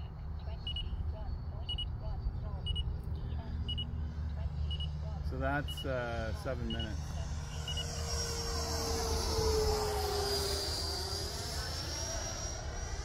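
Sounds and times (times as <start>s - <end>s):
electric jet fan whine: 3.6s - 13.0s.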